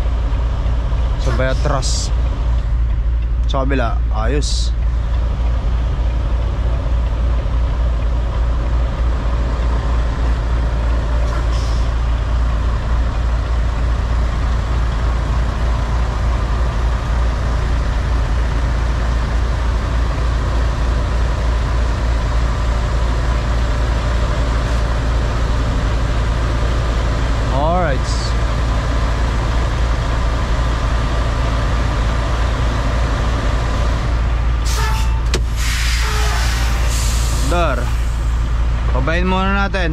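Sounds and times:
diesel truck engine rumbling: 0.0s - 39.9s
short high hiss: 34.7s - 38.1s.

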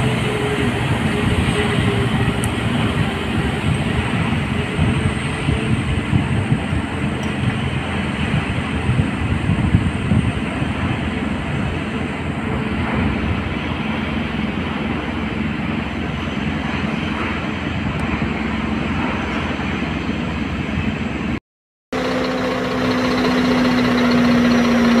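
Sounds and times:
truck engine running: 0.0s - 16.2s, 21.9s - 25.0s.

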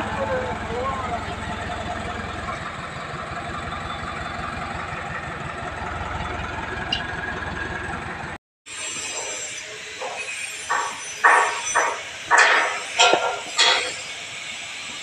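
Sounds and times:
diesel engine running: 0.0s - 8.4s
sharp knocks: 10.0s - 13.9s.

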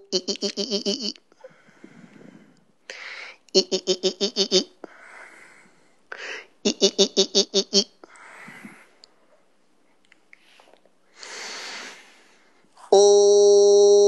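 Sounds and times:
person breathing: 1.3s - 3.5s, 4.8s - 6.6s, 8.0s - 9.5s, 10.3s - 12.9s.

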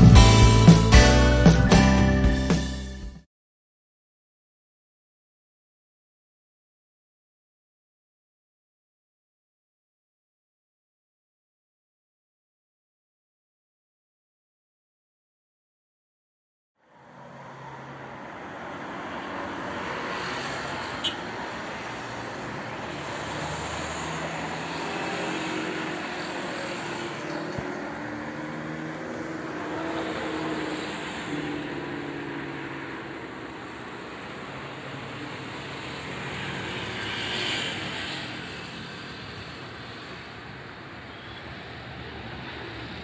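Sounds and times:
road traffic passing: 0.0s - 3.0s, 16.8s - 43.0s.

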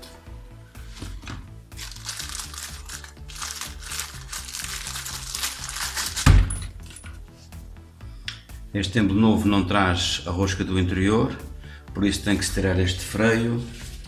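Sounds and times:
plastic bag crinkling: 1.8s - 6.3s.

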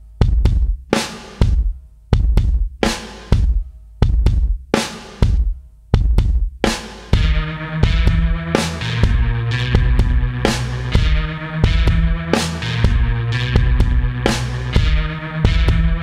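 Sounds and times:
drum kit beat: 0.0s - 16.0s.

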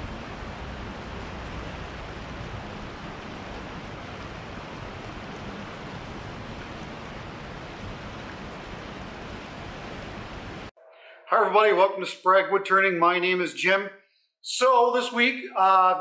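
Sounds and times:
river flowing over rapids: 0.0s - 10.7s.

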